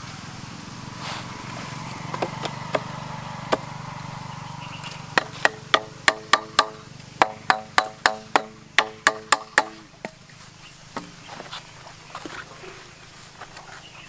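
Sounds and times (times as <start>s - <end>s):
steady low hum: 0.0s - 13.4s
hammer striking pipe fitting: 5.2s - 9.9s.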